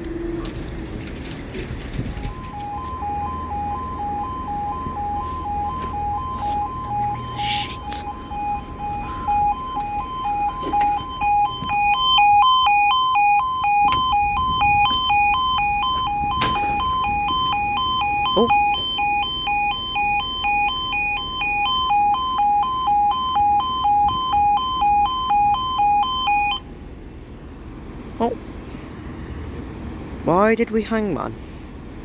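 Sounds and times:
level crossing alarm two tones: 2.2s - 26.6s.

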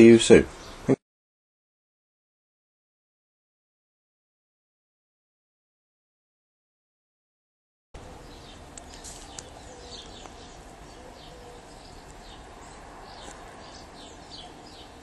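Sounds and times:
small birds chirping: 0.0s - 1.0s, 8.0s - 15.0s.

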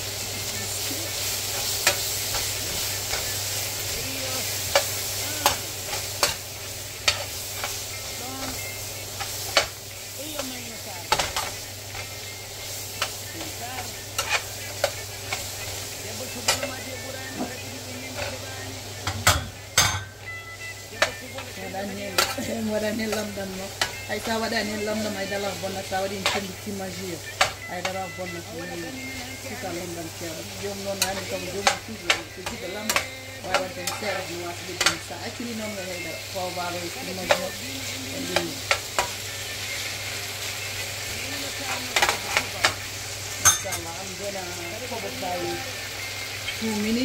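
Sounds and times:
vegetables sizzling in frying pan: 0.0s - 47.0s
faint voice: 5.2s - 5.6s
metal spoon knocking pan: 19.0s - 20.1s, 43.4s - 43.8s
spoon clinking against pan: 43.4s - 43.8s.

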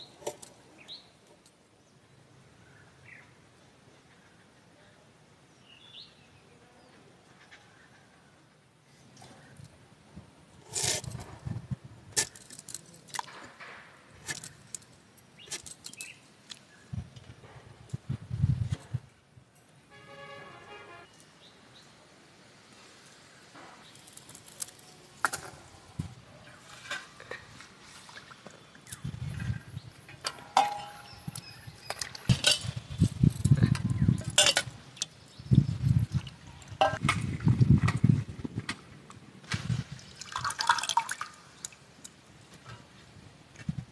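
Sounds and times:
steel plate clinking on bowl: 30.3s - 31.4s.

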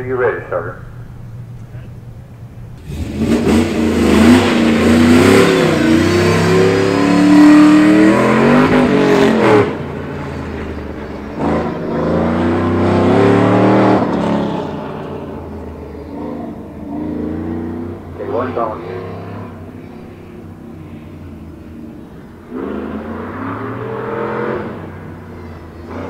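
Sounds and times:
pickup engine revving: 0.0s - 26.0s.

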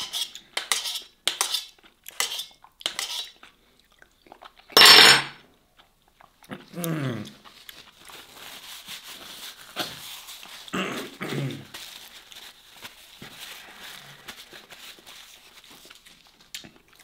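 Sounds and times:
paper tissue rustling: 7.5s - 16.5s.

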